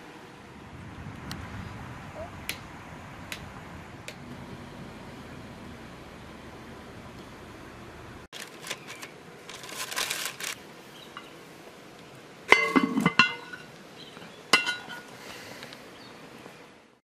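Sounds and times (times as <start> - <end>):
baking paper rustling: 8.3 - 10.6
metal lid clanking onto pot: 12.5 - 13.7, 14.5 - 15.0
metal lid lifter clinking: 12.5 - 13.7.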